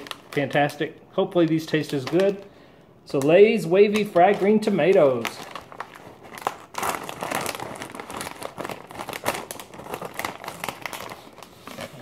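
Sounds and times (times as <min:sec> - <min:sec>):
chip bag crinkling: 0:00.0 - 0:02.5, 0:03.1 - 0:12.0
scissors cutting plastic bag: 0:03.1 - 0:12.0.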